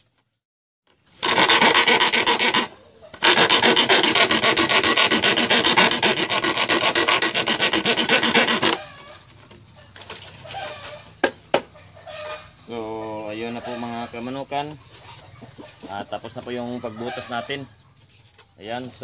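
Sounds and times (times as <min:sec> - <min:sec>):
file rasping plastic: 0:01.2 - 0:09.1.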